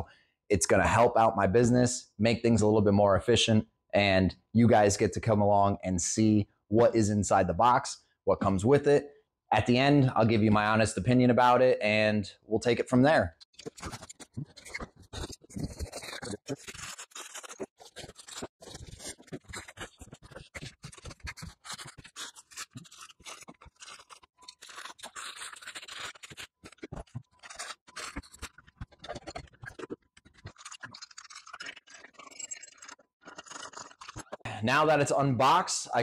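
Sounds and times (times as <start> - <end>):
cardboard rustling and scraping: 13.6 - 30.7.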